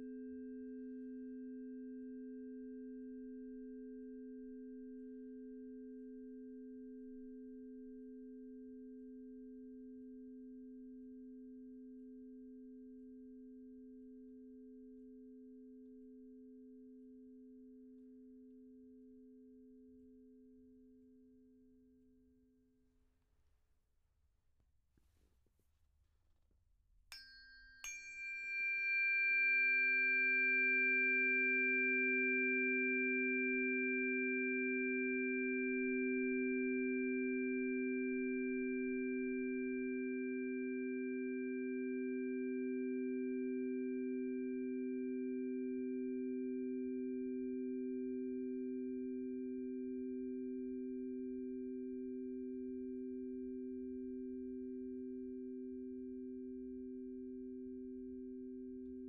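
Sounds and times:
singing bowls ringing: 0:27.2 - 0:34.9.

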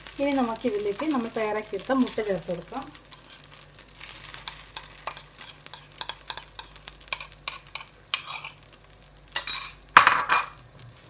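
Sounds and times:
spoon clinking on ceramic bowl: 0:04.8 - 0:08.6.

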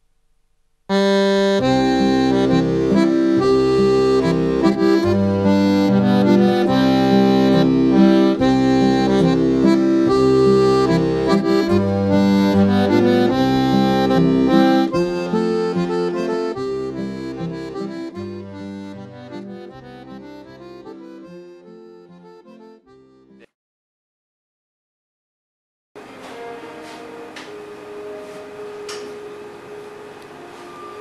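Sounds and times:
instrumental music with held chords: 0:00.9 - 0:23.5.

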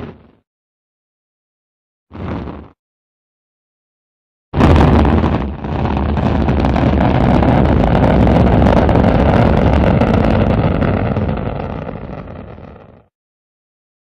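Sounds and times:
rocket engine rumble: 0:04.6 - 0:13.1.

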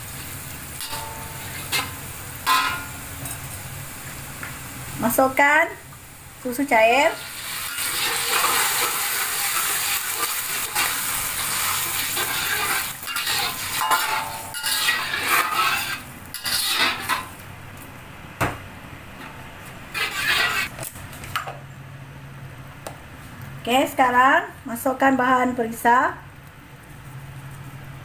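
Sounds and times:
milk sizzling in butter: 0:06.4 - 0:17.4, 0:19.9 - 0:20.8
metal ladle scraping wok: 0:07.2 - 0:17.3, 0:19.9 - 0:20.8.

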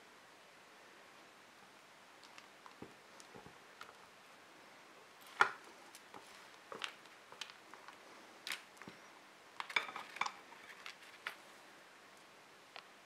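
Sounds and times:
slime squishing: 0:05.2 - 0:08.8.

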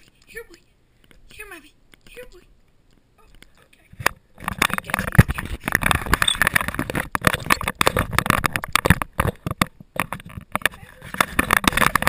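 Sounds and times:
camera handling knocks and rustles: 0:04.4 - 0:12.0.

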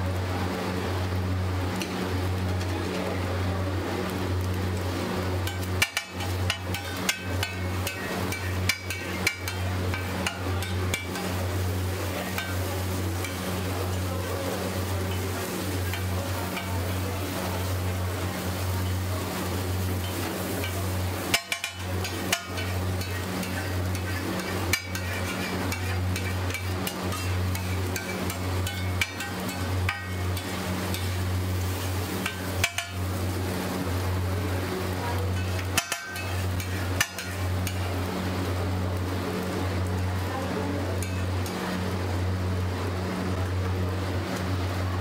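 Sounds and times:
egg frying sizzle: 0:00.0 - 0:45.0
metal spatula scraping griddle: 0:05.4 - 0:33.7, 0:34.8 - 0:38.0
spatula clanging on griddle: 0:05.4 - 0:38.2, 0:41.0 - 0:41.6.

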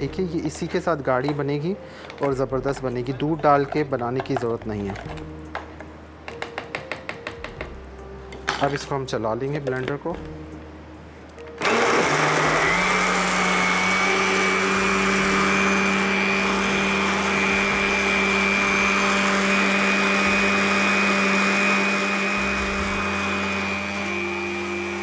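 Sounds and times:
electric blender running: 0:11.6 - 0:25.0.

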